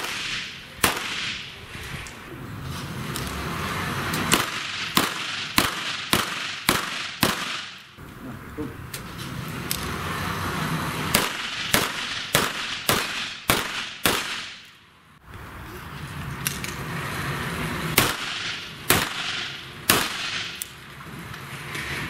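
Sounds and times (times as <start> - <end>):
pistol shots with echo: 0.0 - 1.4, 4.3 - 7.8, 11.1 - 14.6, 18.0 - 20.6
faint distant gunshots: 0.0 - 1.5, 4.3 - 7.8, 11.1 - 14.6.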